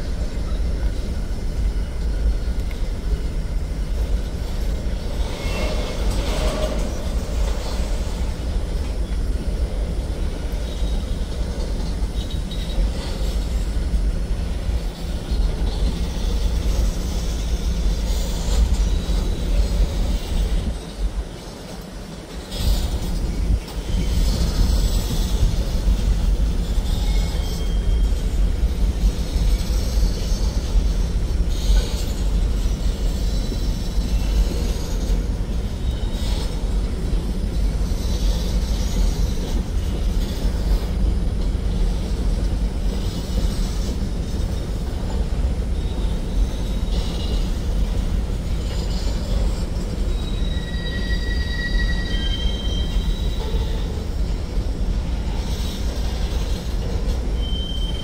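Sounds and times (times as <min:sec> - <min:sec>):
freight train wheels rumbling: 0:00.0 - 0:58.0
wheel squeals: 0:04.6 - 0:09.2, 0:22.4 - 0:41.0, 0:41.7 - 0:58.0.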